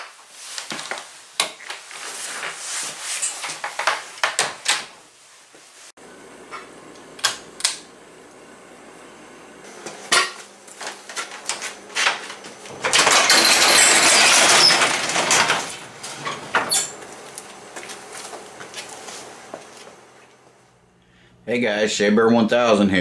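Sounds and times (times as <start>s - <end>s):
garage door rattling up: 11.9s - 17.2s.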